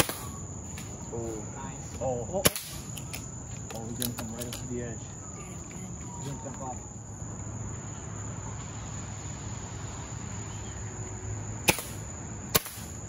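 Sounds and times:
air rifle shots: 0.0 - 0.4, 2.4 - 3.3, 11.6 - 13.0
crickets chirring: 0.0 - 13.0.

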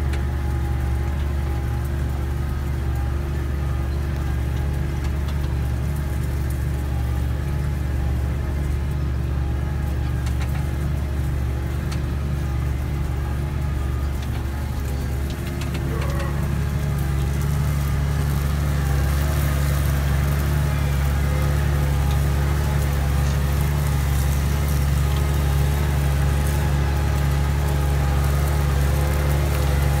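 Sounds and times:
tractor diesel engine drone: 0.0 - 30.0.

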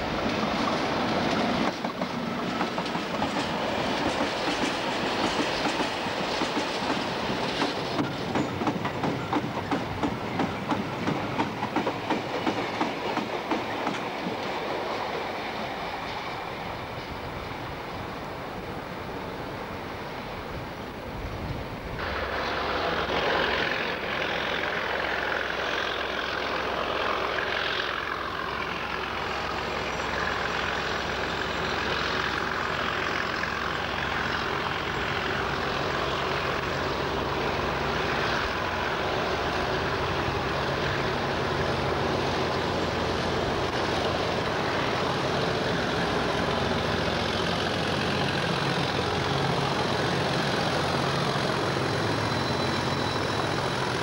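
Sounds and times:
diesel locomotive engine drone: 0.0 - 54.0
wheels rumbling on rails: 0.0 - 54.0.

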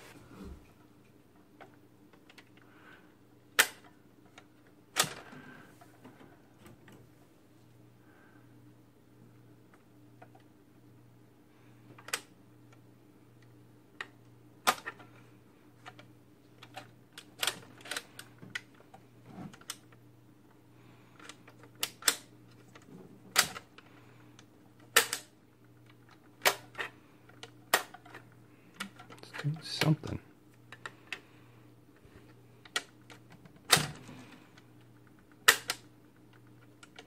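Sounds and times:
record player low hum: 0.0 - 37.0
sharp mechanical clicks: 35.4 - 35.9.

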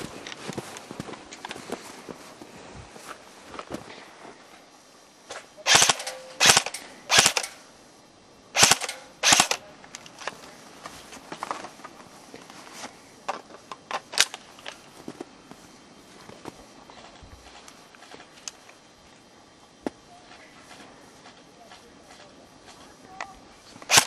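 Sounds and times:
airsoft rifle shots: 5.6 - 7.6, 8.6 - 9.6.

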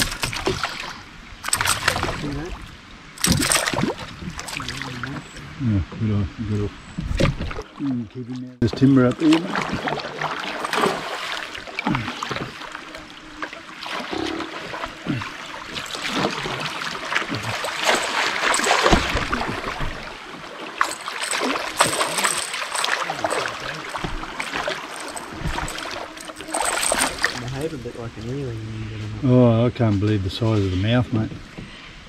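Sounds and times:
small knocks and splashes: 0.0 - 5.1, 9.2 - 12.7, 13.4 - 27.8
water rushing along canoe hull: 0.0 - 5.4, 7.0 - 28.5.

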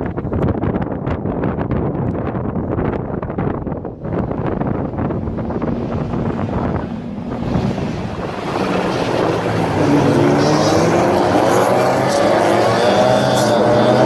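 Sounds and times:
wind buffeting microphone: 0.0 - 14.0
race car engines revving: 4.0 - 14.0.

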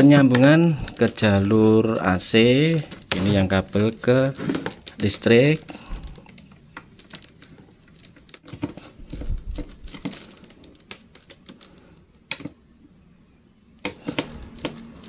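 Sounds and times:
screwdriver clicking and scraping: 13.8 - 15.0.

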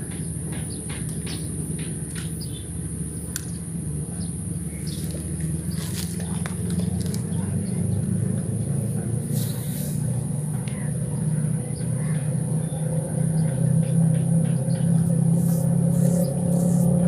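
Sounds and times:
engine humming: 0.0 - 17.0
high-pitched whine: 14.9 - 17.0.

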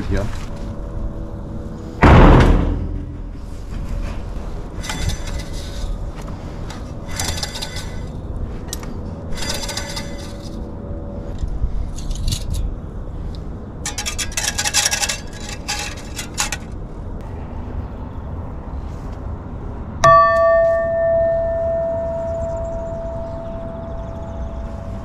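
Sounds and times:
wires scraping on metal pipe: 4.7 - 12.7, 13.8 - 16.8.

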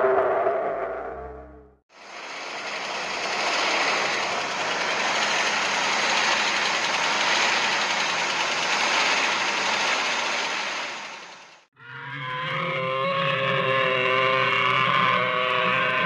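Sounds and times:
toy train motor whirring rattle: 2.0 - 11.6.

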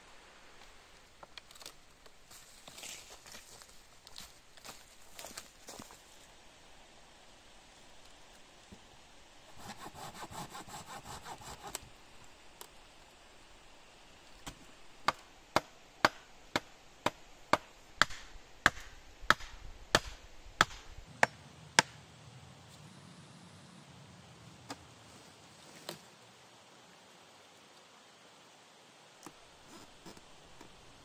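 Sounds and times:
hand saw sawing wood: 9.5 - 11.8
sharp knocks on wood: 14.4 - 22.0.

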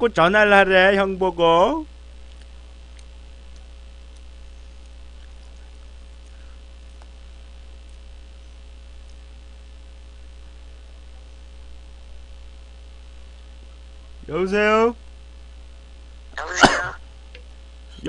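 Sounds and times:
electrical mains hum: 0.0 - 18.0
faint clicks: 2.2 - 9.4, 17.3 - 18.0.

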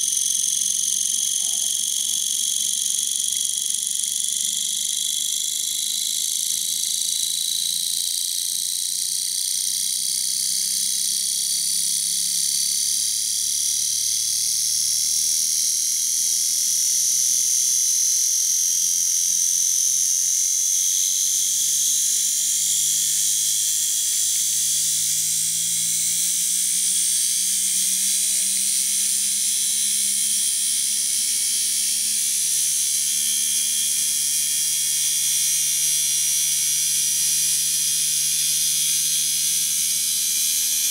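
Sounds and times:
electric motor buzzing whir: 0.0 - 8.0, 22.3 - 40.9.

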